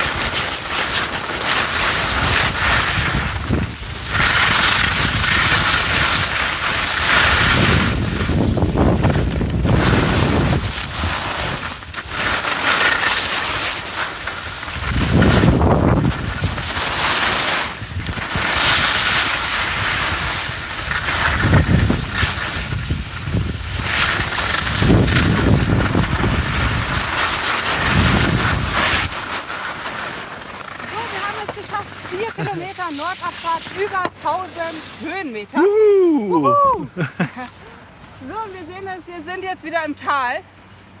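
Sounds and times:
wind rumbling on microphone: 0.0s - 12.5s, 13.4s - 29.6s
skis scraping over snow: 0.0s - 39.8s.

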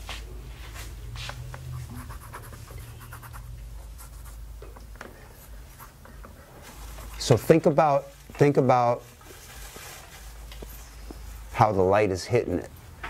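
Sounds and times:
pencil scratching on paper: 1.8s - 4.4s.

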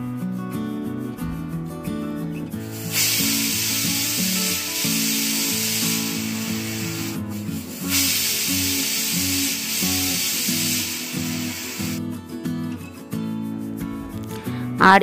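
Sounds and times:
background music: 0.0s - 15.0s
pressure cooker whistling: 2.6s - 12.0s.

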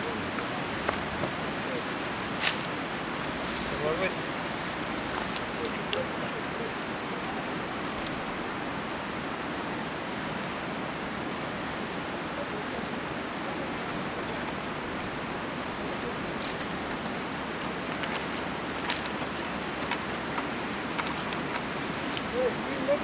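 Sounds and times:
reed screen clicks and crackles: 14.1s - 22.9s.

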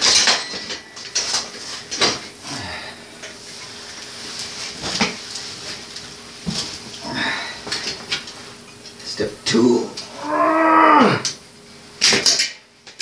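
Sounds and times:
metal tools clinking: 0.0s - 2.2s.

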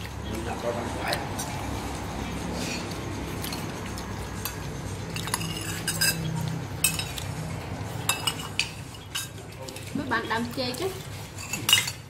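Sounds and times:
spoons clinking on ceramic plates: 3.4s - 7.4s, 8.0s - 10.0s, 11.3s - 12.0s.

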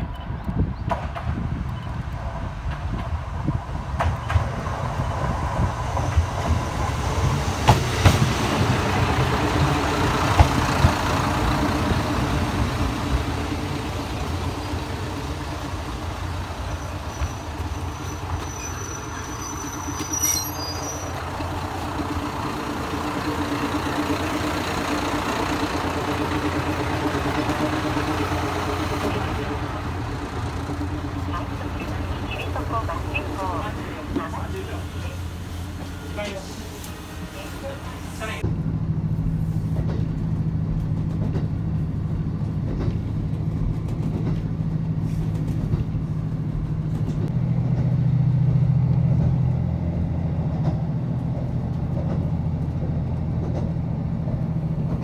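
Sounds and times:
railcar wheels clicking over rail joints: 0.0s - 37.0s, 39.6s - 55.0s
diesel engine idling: 8.5s - 40.7s
high-pitched squeal: 16.7s - 21.2s.

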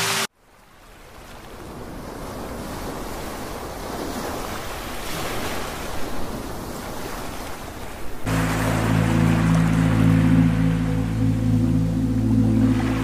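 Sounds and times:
waves washing over rocky shore: 1.0s - 10.1s.

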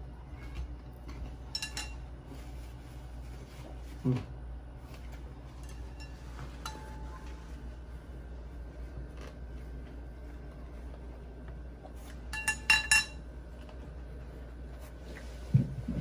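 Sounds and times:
tableware clinking: 1.5s - 2.1s, 5.6s - 7.4s, 12.3s - 13.2s.

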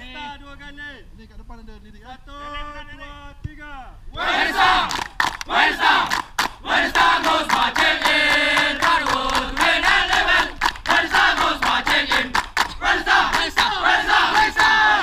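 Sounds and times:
men chanting in unison: 4.2s - 15.0s
hands clapping: 4.8s - 14.9s.

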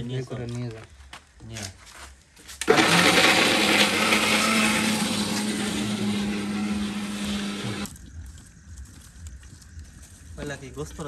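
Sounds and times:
mixer grinder motor running: 2.7s - 7.9s.

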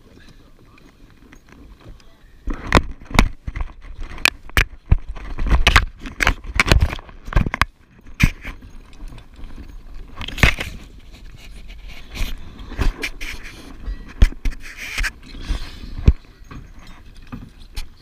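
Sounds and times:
camera handling knocks and scrapes: 2.5s - 8.6s, 10.2s - 15.2s.

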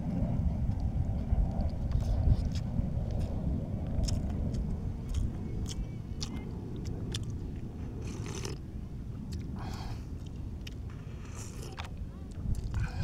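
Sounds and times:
steady low rumble: 0.0s - 13.0s
chewing with wet clicks: 0.7s - 13.0s
person slurping broth: 8.0s - 8.6s, 11.0s - 11.8s.

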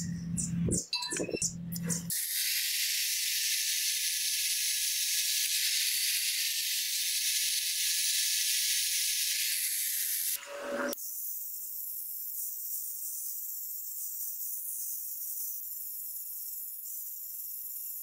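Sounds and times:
angle grinder sanding steel: 2.1s - 11.0s.

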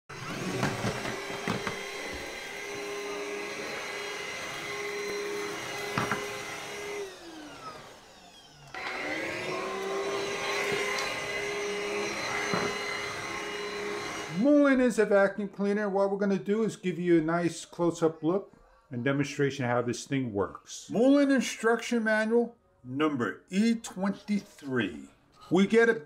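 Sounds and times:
vacuum cleaner whining: 0.1s - 14.8s.

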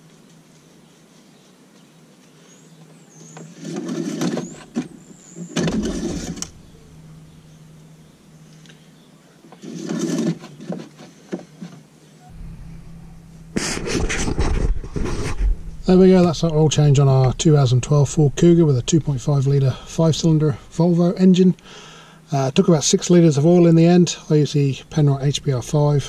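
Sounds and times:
dipstick scraping and rustling: 3.2s - 6.7s, 9.5s - 11.9s, 13.5s - 17.4s.

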